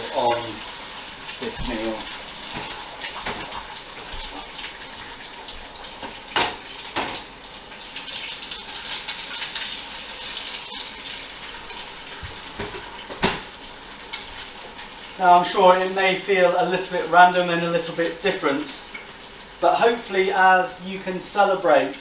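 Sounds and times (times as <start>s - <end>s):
egg sizzling in a pan: 0.0s - 22.0s
pan and utensils clattering: 1.3s - 4.5s, 5.9s - 7.3s, 12.4s - 13.5s.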